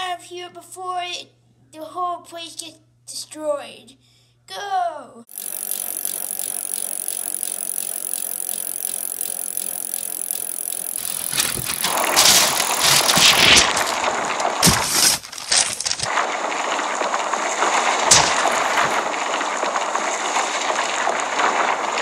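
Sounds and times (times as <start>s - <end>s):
toy truck wheels rolling on wood: 5.3s - 16.1s.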